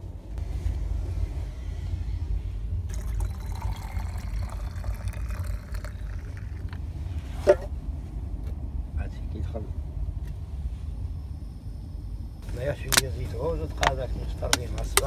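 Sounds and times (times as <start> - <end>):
steady low rumble: 0.0 - 15.0
water pouring into teapot: 2.9 - 6.8.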